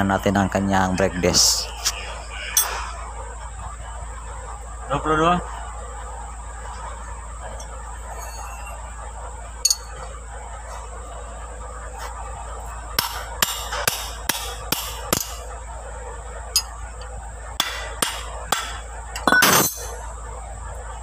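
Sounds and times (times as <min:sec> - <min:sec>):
metallic clatter: 0:09.6 - 0:10.0.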